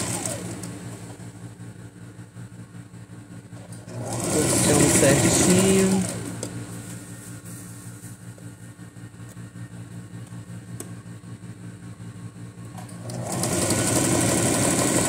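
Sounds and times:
electric sewing machine running: 0:00.0 - 0:01.2, 0:03.7 - 0:06.8, 0:12.7 - 0:15.0.

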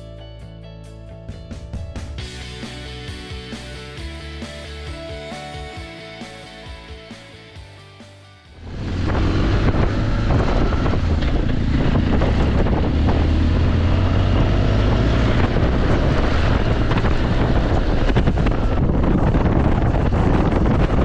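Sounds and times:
motorcycle engine drone: 0:08.5 - 0:21.0
wind rushing over microphone: 0:08.6 - 0:21.0.

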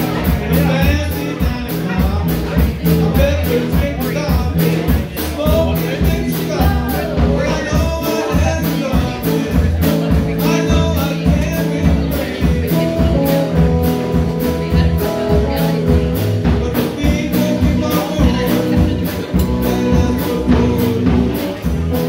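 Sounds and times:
live rock band playing: 0:00.0 - 0:22.0
woman singing: 0:05.5 - 0:21.6.

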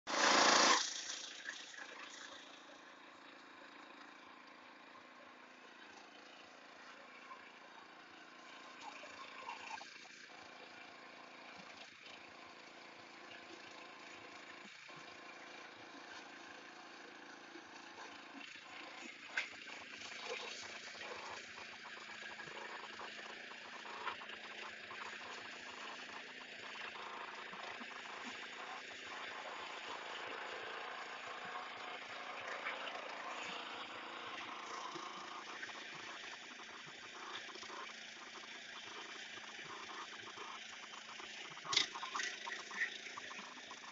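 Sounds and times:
rotary tines working soil: 0:00.1 - 0:02.9
cultivator engine running: 0:00.1 - 0:43.9.

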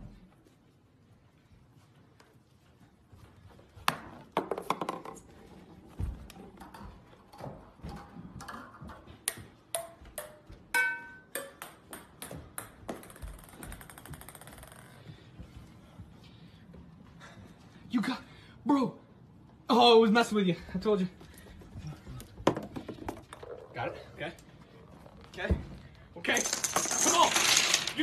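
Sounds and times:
ball rolling on hardwood floor: 0:03.8 - 0:09.1, 0:11.6 - 0:15.8, 0:21.8 - 0:28.0
golf ball knocking on hard surfaces: 0:03.9 - 0:05.2, 0:22.4 - 0:23.7
ringing ping: 0:10.8 - 0:11.6.

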